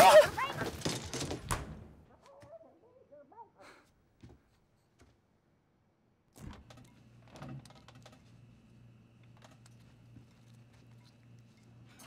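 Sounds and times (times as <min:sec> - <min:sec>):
small clicks and rattles: 0:06.5 - 0:08.4.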